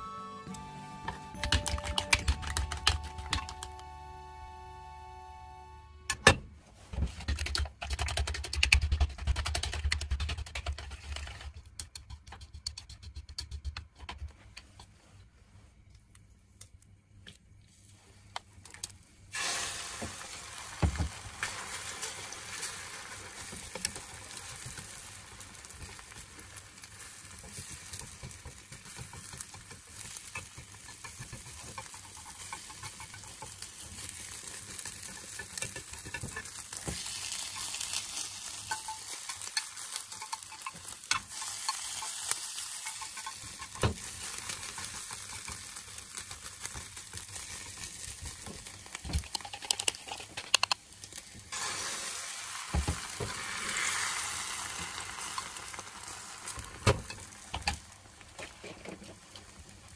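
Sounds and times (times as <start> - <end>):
egg sizzling in a pan: 19.3 - 59.9
chopsticks stirring and scraping: 25.7 - 48.5, 49.2 - 50.7
chopsticks clicking against pan: 28.0 - 36.6, 38.7 - 43.9.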